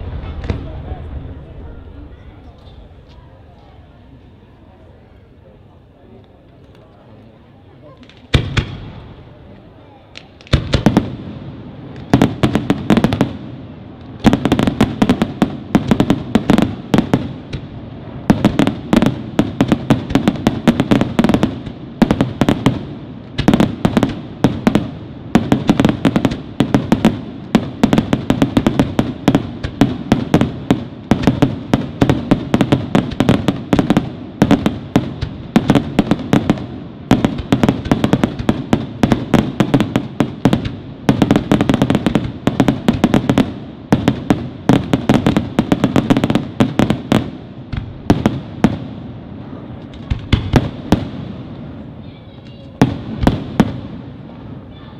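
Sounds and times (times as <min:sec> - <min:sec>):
fireworks bangs: 0:00.0 - 0:04.2, 0:07.8 - 0:54.9
low rumble of echoes: 0:00.0 - 0:05.2.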